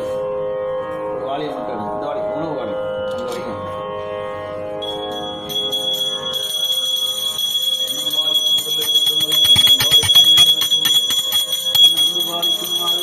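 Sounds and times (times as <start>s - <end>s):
bell clapper strikes: 4.8s - 13.0s
hand bell ringing: 4.8s - 13.0s.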